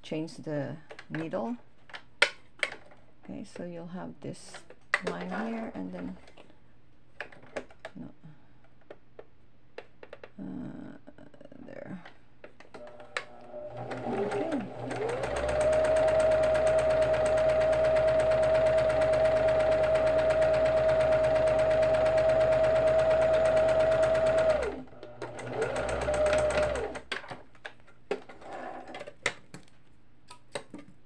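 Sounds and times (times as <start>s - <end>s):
sewing machine motor stitching: 12.8s - 27.1s.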